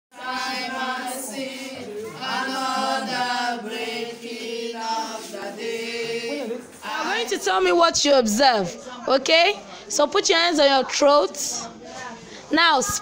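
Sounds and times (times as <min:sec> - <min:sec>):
women singing unaccompanied: 0:00.1 - 0:08.7.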